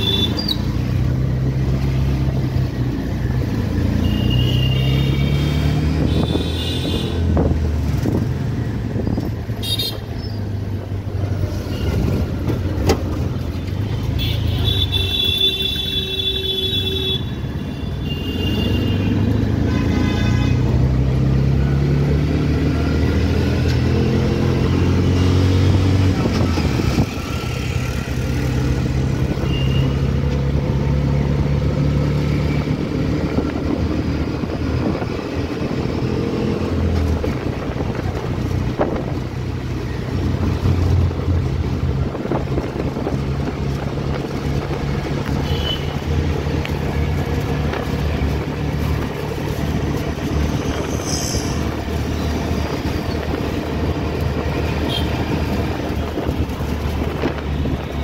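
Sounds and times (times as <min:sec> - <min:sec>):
vehicle horns honking: 0:00.0 - 0:00.6, 0:04.0 - 0:07.3, 0:09.6 - 0:10.1, 0:14.1 - 0:20.7, 0:29.4 - 0:30.1, 0:45.4 - 0:46.0, 0:54.8 - 0:55.3
auto-rickshaw engine running: 0:00.0 - 0:58.0.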